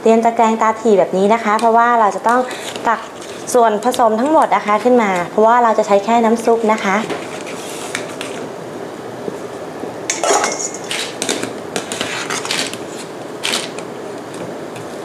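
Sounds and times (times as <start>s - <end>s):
strainer clinking against steel pot: 10.1s - 11.1s.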